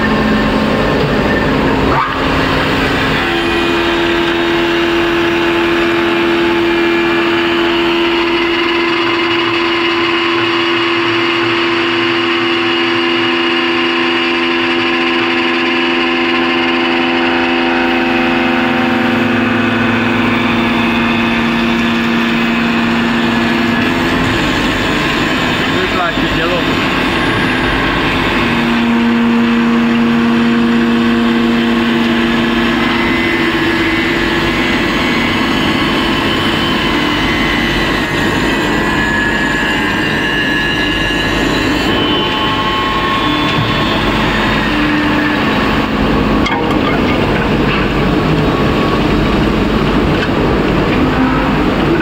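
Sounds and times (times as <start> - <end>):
wood lathe shaving wood: 0.0 - 46.4
motor whine: 0.0 - 52.0.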